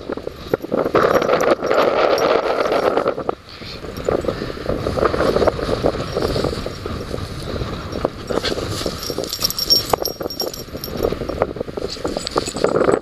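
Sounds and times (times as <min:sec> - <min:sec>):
light clinks: 0:00.0 - 0:04.4, 0:05.0 - 0:13.0
wind buffeting microphone: 0:00.0 - 0:13.0
rustling through long grass: 0:03.8 - 0:12.8.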